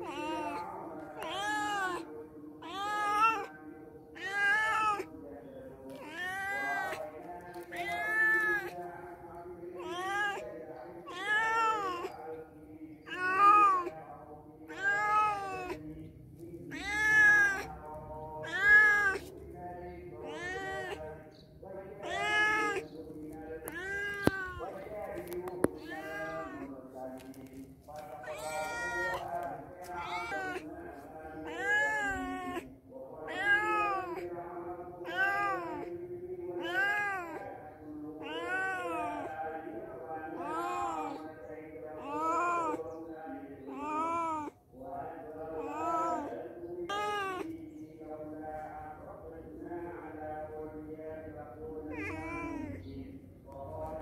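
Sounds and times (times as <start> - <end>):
cat meowing: 0.0 - 3.5, 4.1 - 5.1, 5.9 - 7.0, 7.6 - 8.8, 9.8 - 10.4, 11.0 - 12.2, 13.0 - 13.9, 14.7 - 15.8, 16.7 - 17.7, 18.4 - 19.4, 20.2 - 21.0, 22.0 - 22.9, 23.6 - 24.8, 25.6 - 26.7, 28.1 - 30.7, 31.4 - 34.2, 35.0 - 35.9, 36.6 - 37.5, 38.2 - 39.4, 40.3 - 41.2, 42.0 - 42.8, 43.7 - 44.6, 45.6 - 46.3, 46.9 - 47.5, 51.9 - 52.8.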